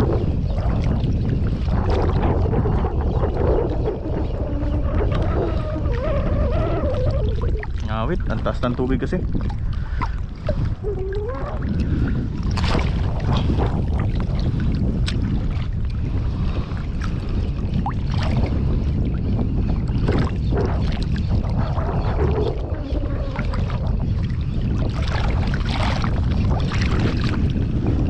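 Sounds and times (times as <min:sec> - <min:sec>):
sea water sloshing and splashing: 0:00.0 - 0:28.0
wind rumbling on microphone: 0:00.0 - 0:28.0
small splashes: 0:09.4 - 0:13.6.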